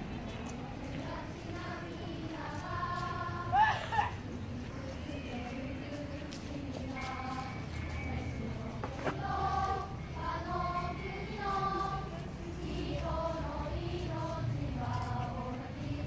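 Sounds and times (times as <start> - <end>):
choir singing: 0.7 - 16.0.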